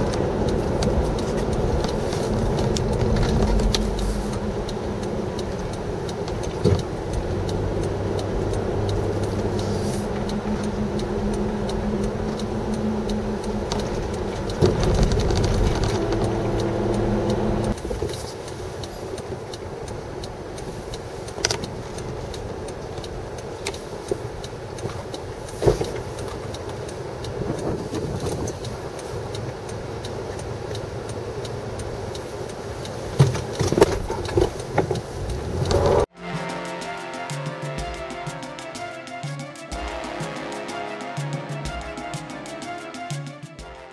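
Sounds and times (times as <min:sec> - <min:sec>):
car engine and road noise: 0:00.0 - 0:43.7
level tones: 0:35.6 - 0:43.5.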